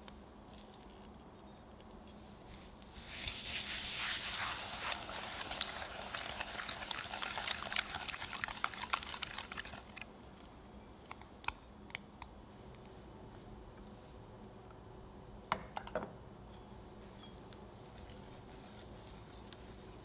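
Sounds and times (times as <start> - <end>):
whisk beating eggs in bowl: 3.0 - 10.0.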